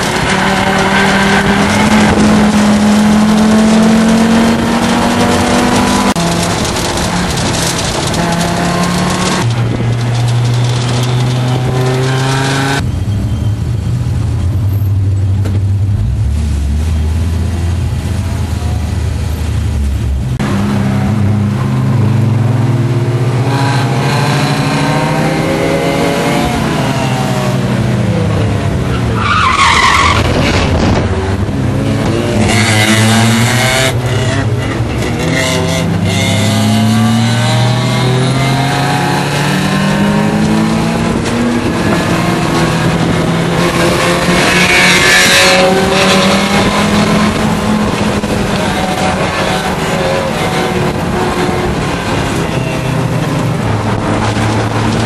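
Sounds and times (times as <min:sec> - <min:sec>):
race car engine from inside cabin: 0:00.0 - 0:12.8
tire squeal: 0:12.8 - 0:14.0, 0:29.0 - 0:30.7.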